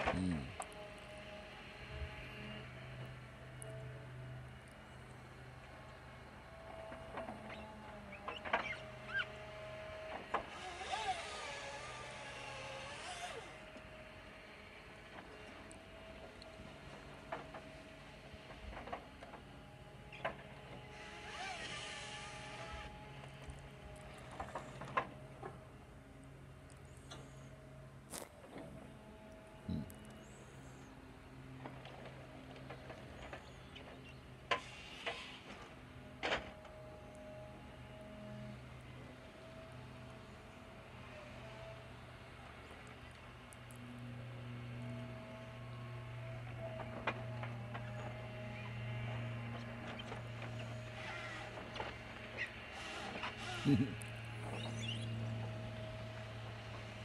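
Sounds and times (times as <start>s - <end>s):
distant diesel engines droning: 0.0s - 57.0s
distant forestry machines working: 0.0s - 57.0s
engine revving under load: 19.7s - 33.9s, 43.6s - 57.0s.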